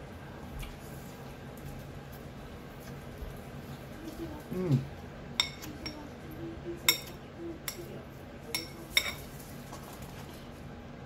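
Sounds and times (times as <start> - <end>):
spoon clinking against glass bowl: 5.4 - 6.0, 6.9 - 7.8, 8.5 - 9.2.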